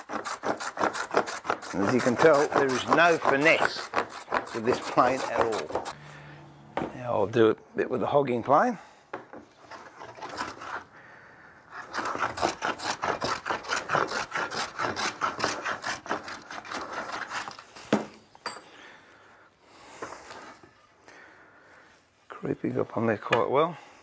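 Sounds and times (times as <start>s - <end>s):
hand plane rasping on wood: 0.0s - 6.0s, 9.7s - 10.9s, 11.7s - 17.6s.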